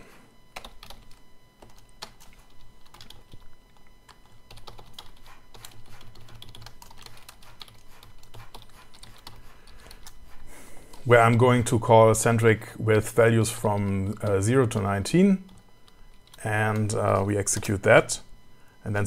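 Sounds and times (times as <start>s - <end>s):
keyboard typing clicks: 0.5s - 10.2s.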